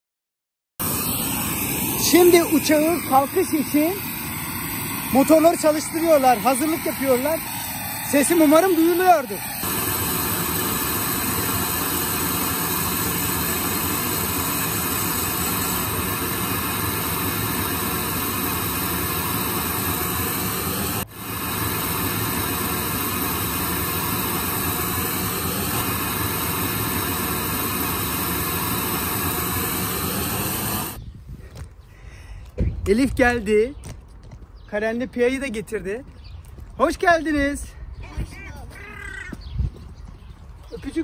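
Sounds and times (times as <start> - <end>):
high-pitched engine whine: 0.8 - 31.0
jet engines running: 0.8 - 31.0.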